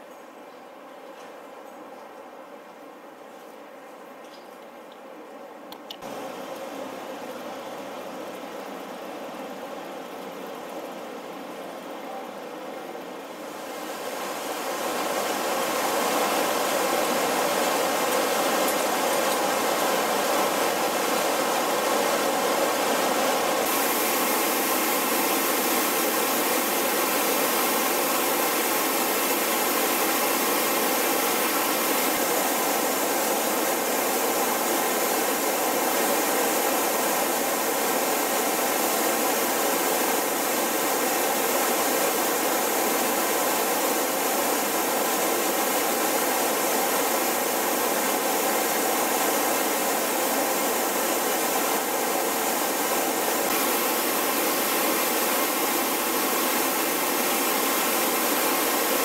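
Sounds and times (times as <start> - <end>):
waterfall rushing over rocks: 13.3 - 59.0.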